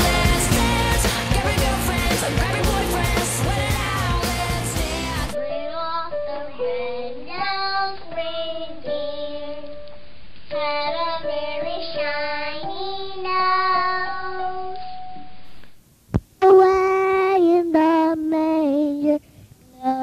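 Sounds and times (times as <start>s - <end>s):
child singing a slow melody: 4.8s - 15.2s, 16.4s - 20.0s.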